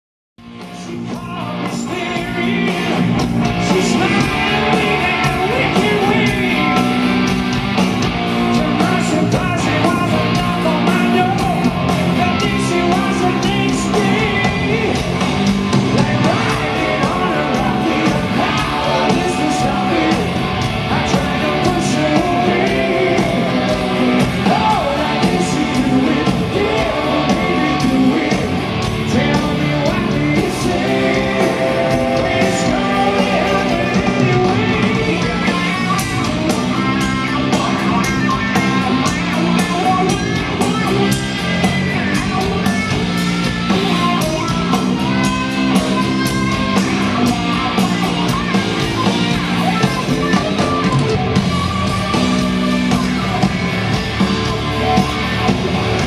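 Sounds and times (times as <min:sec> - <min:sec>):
electric guitar: 0:00.4 - 0:56.0
hard rock band playing live: 0:00.4 - 0:56.0
man singing: 0:00.6 - 0:07.0, 0:08.4 - 0:43.0.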